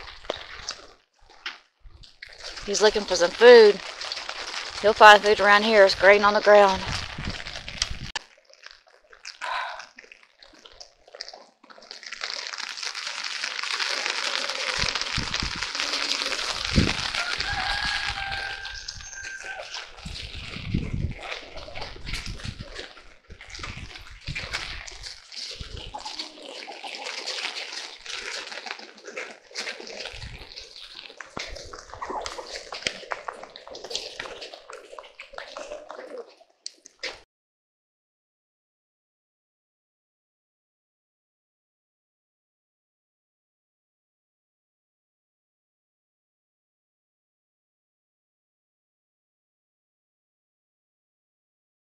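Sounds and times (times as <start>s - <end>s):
water dripping and splashing: 0.0s - 37.2s
rain falling onto puddles: 2.1s - 37.2s.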